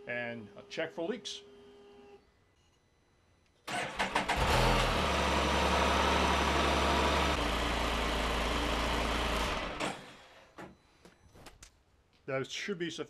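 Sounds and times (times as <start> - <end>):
engine starter cranking: 3.7 - 5.0
engine idling: 3.7 - 10.1.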